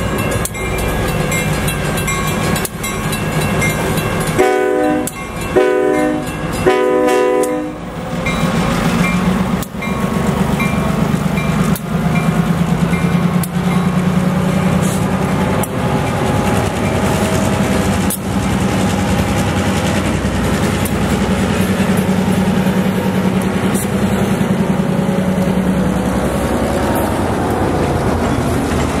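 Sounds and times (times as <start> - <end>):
diesel locomotive engine drone: 0.0 - 29.0
wheels clacking over rail joints: 0.0 - 29.0.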